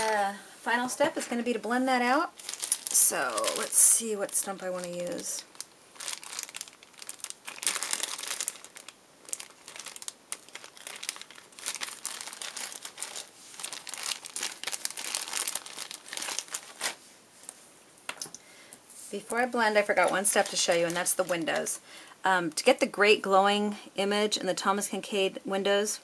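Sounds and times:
pencils rustling and scratching: 0:18.9 - 0:21.8.

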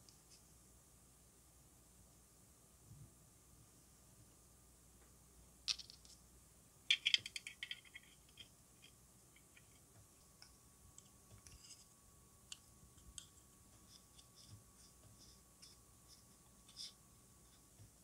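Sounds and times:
plastic parts clicking and rattling: 0:06.9 - 0:09.9.

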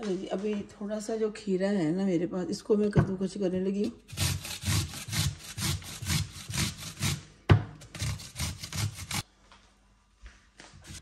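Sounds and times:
grater rasping strokes: 0:04.1 - 0:07.2, 0:07.8 - 0:09.2.

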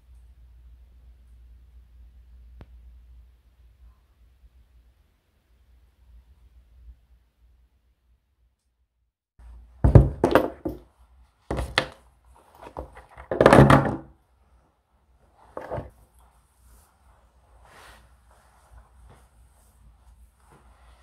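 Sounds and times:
rustling of handled items: 0:09.4 - 0:21.0
knocks and thuds on tabletop: 0:09.8 - 0:10.8, 0:11.5 - 0:12.0, 0:12.7 - 0:14.1.

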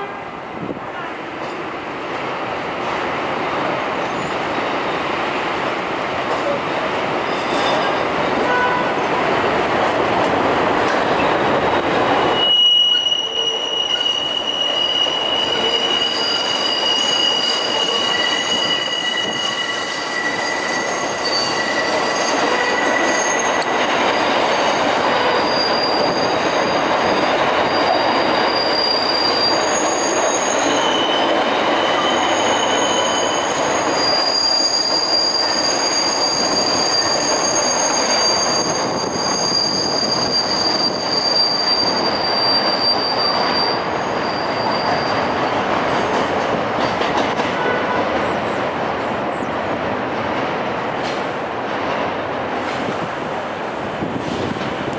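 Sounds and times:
train wheels squealing on rails: 0:03.3 - 0:05.2, 0:06.3 - 0:09.2, 0:10.9 - 0:49.6
train rumble: 0:42.0 - 0:54.9.

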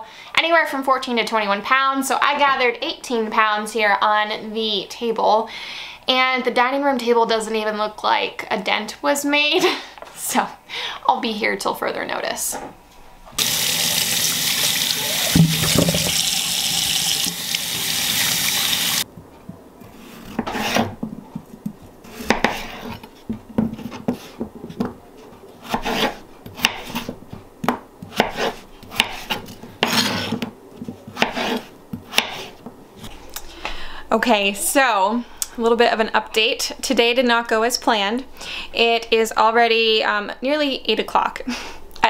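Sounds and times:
tap water running: 0:13.4 - 0:19.1
knife chopping on cutting board: 0:20.2 - 0:21.0, 0:22.1 - 0:23.0, 0:25.6 - 0:32.5.

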